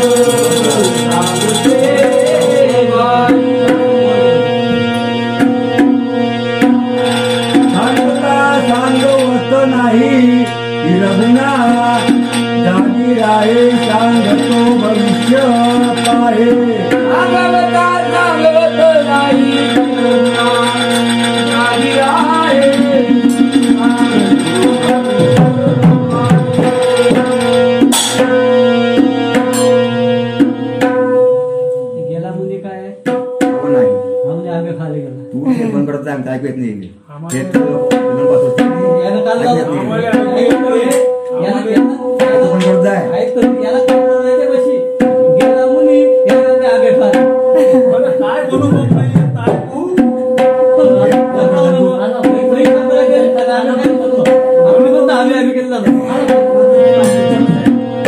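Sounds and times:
hand drum fast beat: 0.0 - 4.1, 5.4 - 29.8, 37.3 - 58.0
person singing: 0.0 - 4.9, 7.6 - 27.8, 37.3 - 58.0.

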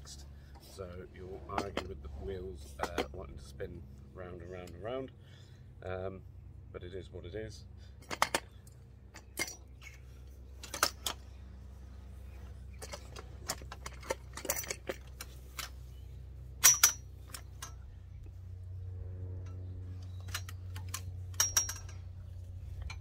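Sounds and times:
metal tubing clanking: 0.6 - 3.5, 8.0 - 18.4, 19.4 - 23.0.

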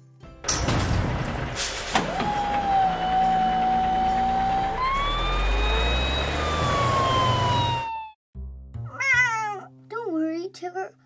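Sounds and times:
low engine rumble: 0.6 - 8.1
fire engine siren wailing: 2.0 - 8.2.

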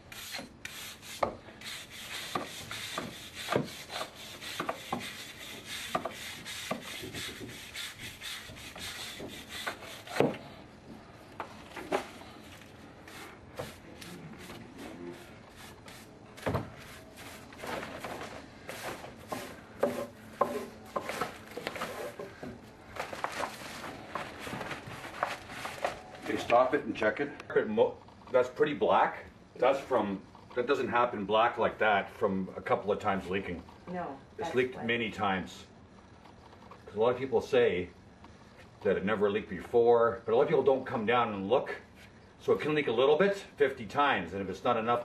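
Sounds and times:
scraping against wall: 11.6 - 26.5.

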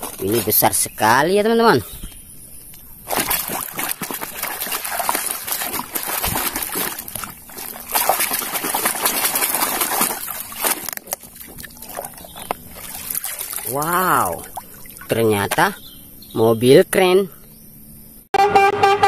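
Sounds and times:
toy swished in muddy water: 3.1 - 13.8.

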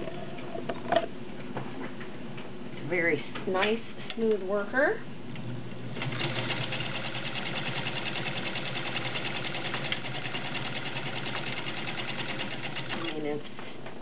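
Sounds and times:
sewing machine stitching: 6.0 - 13.4.

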